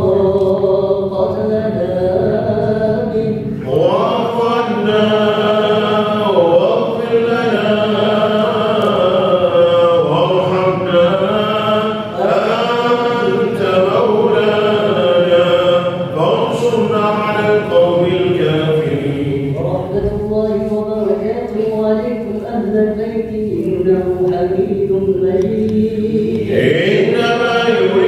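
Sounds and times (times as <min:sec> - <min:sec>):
voices chanting together: 0:00.0 - 0:20.8, 0:22.6 - 0:28.0.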